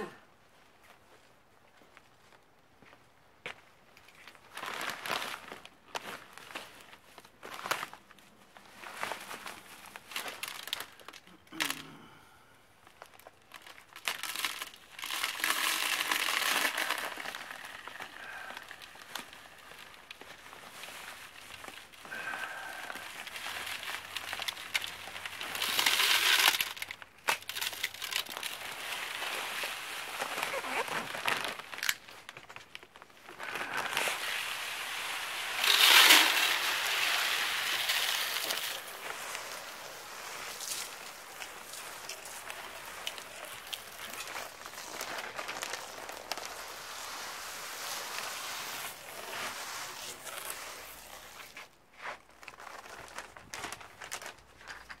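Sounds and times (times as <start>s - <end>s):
plastic bag crinkling: 4.0s - 11.9s, 12.8s - 55.0s
granules pouring into bucket: 9.1s - 11.8s, 13.1s - 32.0s, 33.3s - 51.6s.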